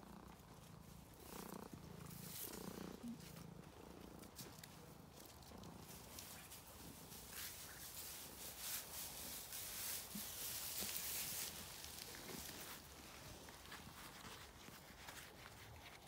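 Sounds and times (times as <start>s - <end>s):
cat purring: 0.0s - 8.4s
soft rustling: 0.1s - 16.0s.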